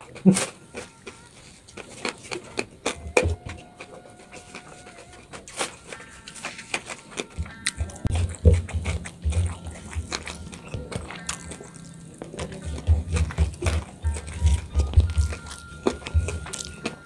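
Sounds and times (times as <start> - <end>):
chewing and lip-smacking: 0.0 - 17.0.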